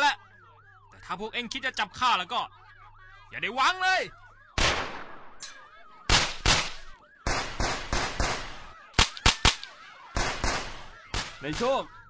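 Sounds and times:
sharp gunshots: 4.6s - 12.0s.

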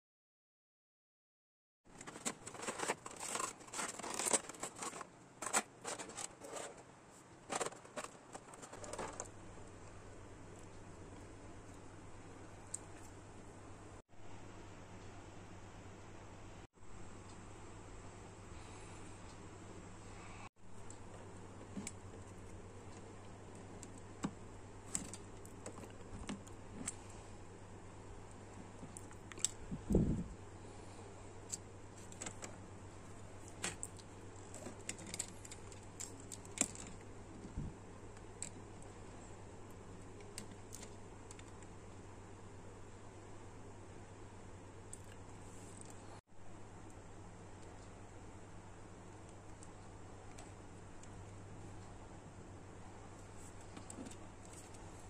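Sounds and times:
plastic packaging crinkling: 1.9s - 6.8s, 7.4s - 9.3s.

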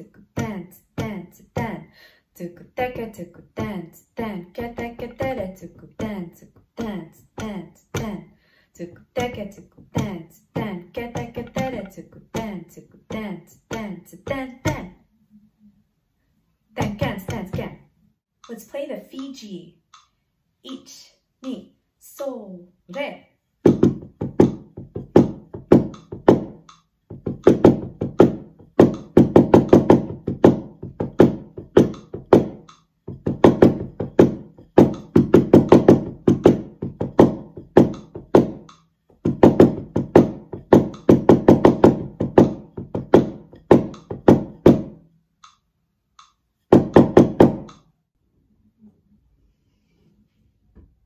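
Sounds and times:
drum struck with wooden sticks: 9.2s - 15.0s, 23.6s - 45.6s, 46.2s - 47.8s.

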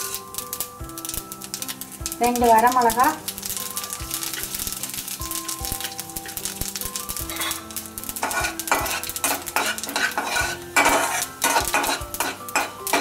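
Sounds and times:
frying seeds crackling: 0.0s - 13.0s
oil sizzling: 0.0s - 13.0s
spatula scraping a metal pan: 7.2s - 13.0s.

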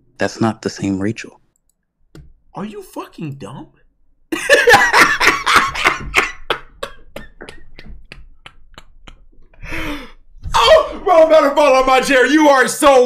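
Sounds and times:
man laughing hard: 4.3s - 7.8s.

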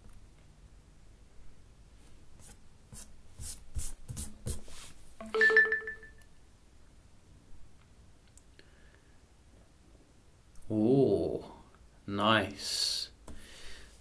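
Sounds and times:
smartphone two-tone chime: 5.2s - 6.2s.

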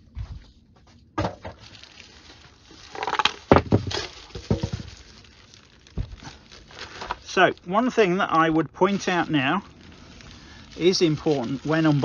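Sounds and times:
packaging rustling: 1.4s - 12.0s
knocks of items set down: 3.5s - 4.9s.

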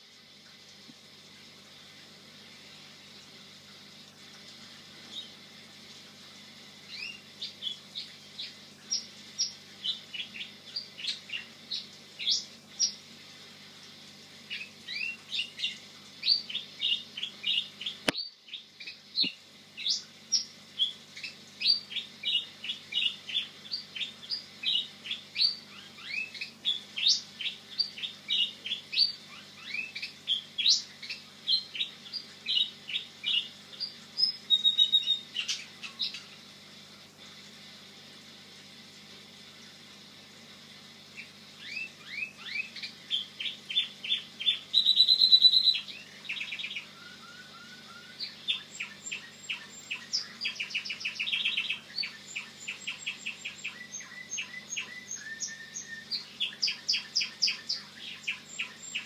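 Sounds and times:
canary singing trills: 6.9s - 13.0s, 14.5s - 36.4s, 41.2s - 59.0s.

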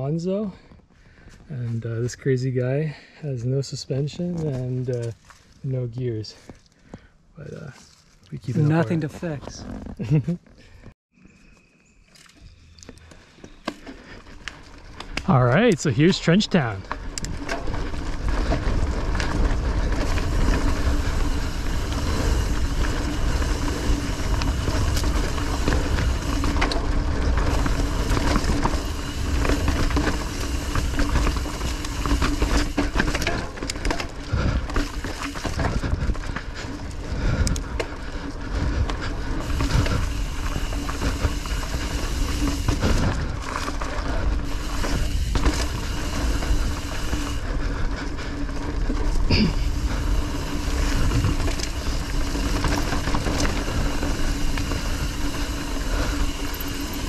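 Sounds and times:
tyres on dirt: 3.9s - 57.0s
bike rattling and knocking: 13.5s - 57.0s.

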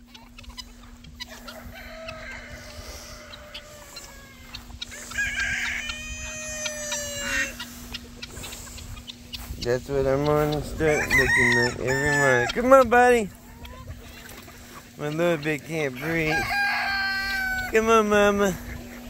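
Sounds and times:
roosters crowing: 0.0s - 19.0s.

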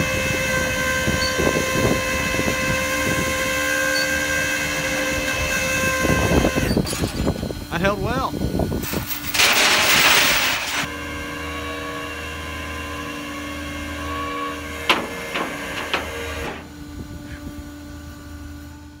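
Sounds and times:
hydraulics whining and humming: 0.0s - 19.0s
metal chains clanking: 8.8s - 10.9s.

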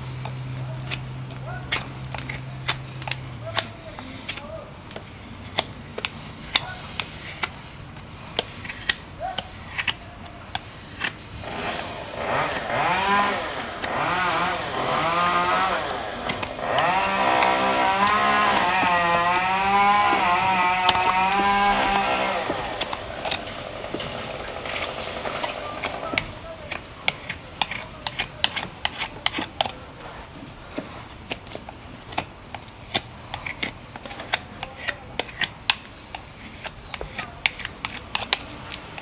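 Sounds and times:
motor running with wavering pitch: 11.4s - 26.2s.

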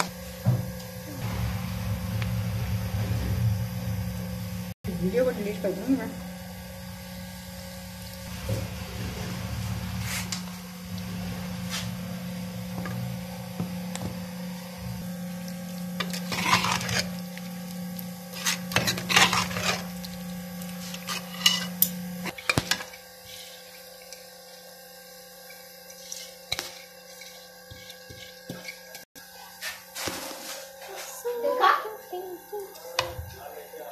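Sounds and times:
steady low hum: 0.0s - 33.9s
ladle scraping a pot: 16.0s - 17.2s, 18.3s - 19.9s, 20.8s - 24.1s, 25.5s - 29.0s.

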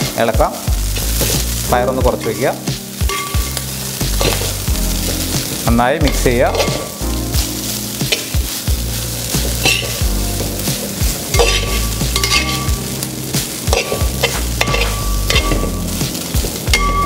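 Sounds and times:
butter sizzling: 0.0s - 17.0s
metal ladle scraping pot: 6.0s - 7.0s, 9.6s - 10.1s, 11.3s - 12.8s, 13.7s - 15.8s.

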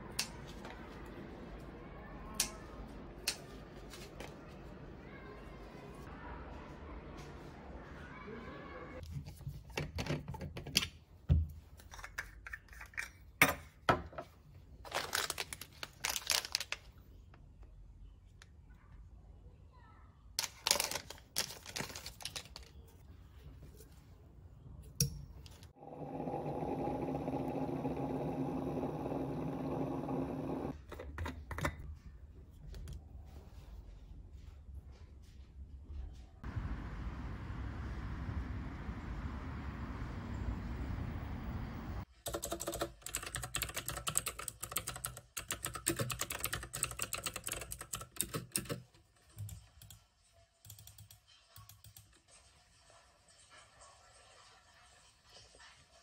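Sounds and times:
hot water dispenser running: 25.8s - 30.7s
typing on computer keyboard: 42.2s - 50.0s, 50.6s - 52.1s.

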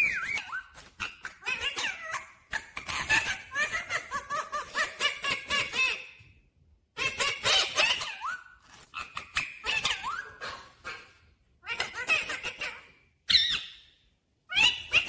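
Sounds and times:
parakeet chattering: 7.0s - 13.9s.

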